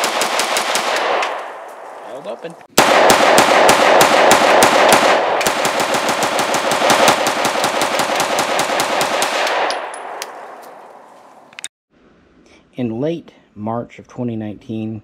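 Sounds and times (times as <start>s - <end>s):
rapid gunshots: 0.0s - 1.4s, 2.7s - 9.7s.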